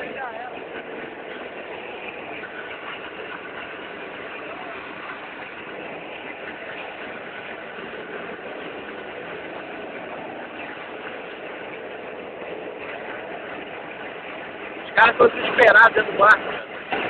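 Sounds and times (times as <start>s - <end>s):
motor running steadily: 0.0s - 17.0s.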